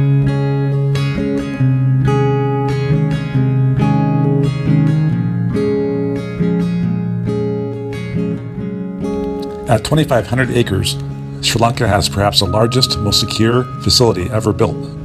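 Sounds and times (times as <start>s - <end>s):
acoustic guitar chords: 0.0s - 15.0s.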